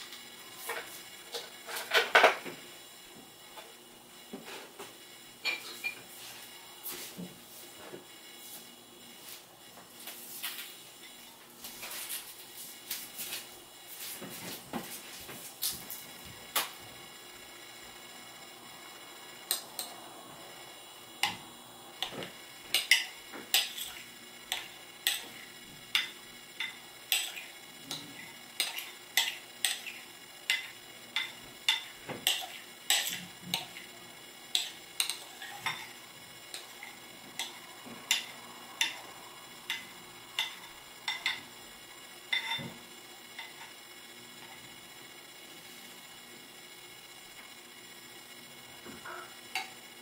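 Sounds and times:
spoon scraping glass bowl: 22.7s - 25.2s.

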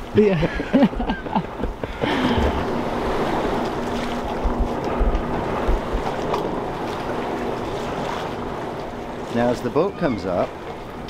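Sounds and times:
wind buffeting microphone: 0.0s - 11.0s
low thumps: 1.4s - 7.6s.

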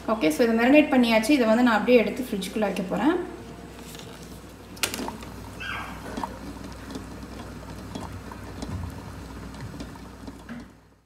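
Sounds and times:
low steady hum: 0.0s - 11.0s
water bubbling in saucepan: 5.0s - 11.0s.

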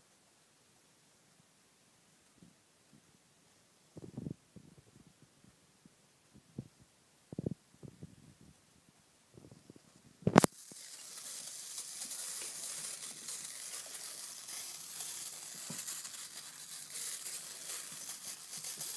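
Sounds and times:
fur brushing microphone: 10.3s - 18.9s.

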